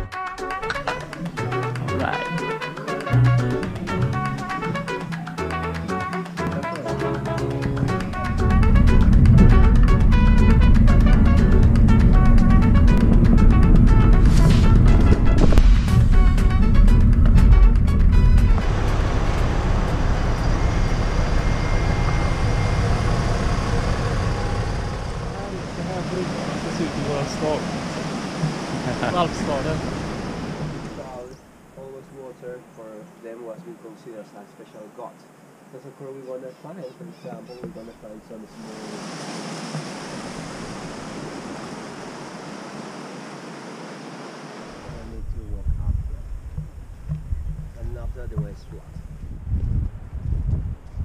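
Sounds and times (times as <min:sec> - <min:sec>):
train carriages rumbling past: 0:06.8 - 0:31.2
mountain stream rushing: 0:18.6 - 0:32.3, 0:38.1 - 0:44.9.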